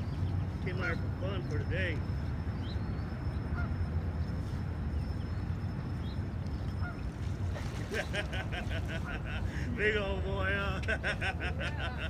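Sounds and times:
steady low rumble: 0:00.0 - 0:12.0
faint waterfowl calls: 0:03.5 - 0:03.9, 0:06.6 - 0:09.7.

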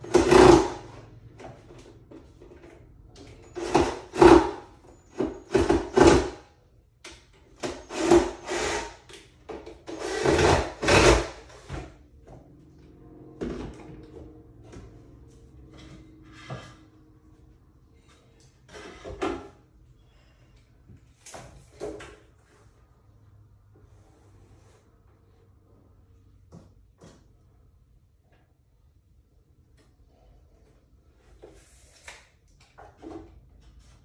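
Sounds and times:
cordless drill driving screws: 0:07.6 - 0:09.1.

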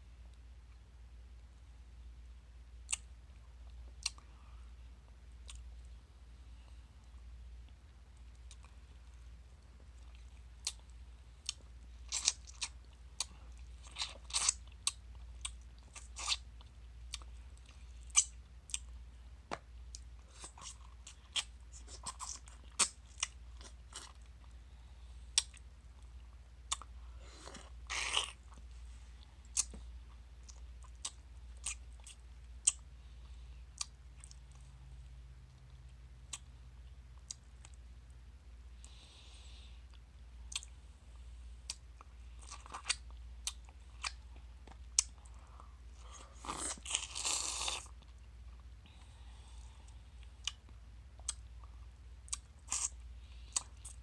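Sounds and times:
mouth eating mango: 0:02.8 - 0:04.4, 0:06.6 - 0:24.7, 0:25.3 - 0:37.9, 0:38.8 - 0:54.0.

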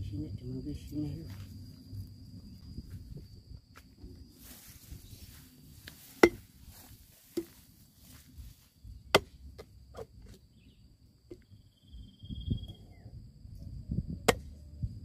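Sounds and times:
machete chopping coconut husk: 0:06.1 - 0:06.5, 0:09.1 - 0:09.7.

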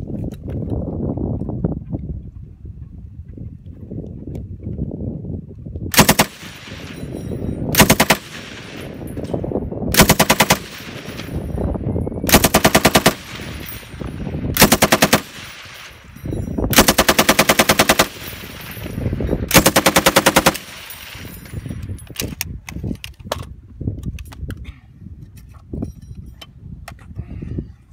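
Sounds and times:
machine gun bursts: 0:05.9 - 0:07.0, 0:07.8 - 0:09.0, 0:10.0 - 0:11.4, 0:12.3 - 0:14.0, 0:14.6 - 0:16.1, 0:16.7 - 0:21.4.

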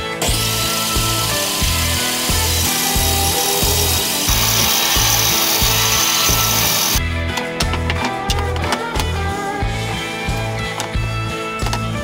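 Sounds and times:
table saw cutting board: 0:00.0 - 0:07.0
background music with beat: 0:00.0 - 0:12.0.

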